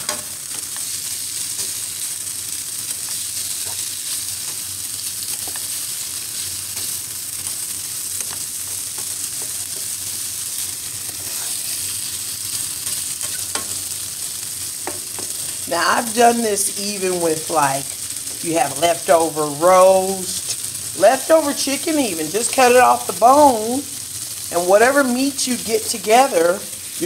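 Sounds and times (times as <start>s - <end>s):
sausage sizzling in a pan: 0.0s - 27.0s
spatula scraping and tapping: 8.2s - 10.0s, 12.8s - 13.8s.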